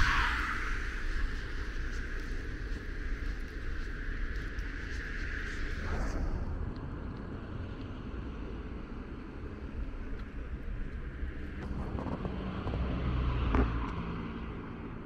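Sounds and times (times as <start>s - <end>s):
low street traffic: 0.0s - 15.0s
wind on microphone: 0.0s - 15.0s.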